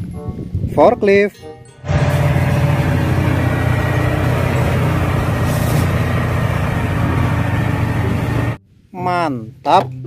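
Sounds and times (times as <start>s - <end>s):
diesel engine running under load: 1.8s - 8.6s.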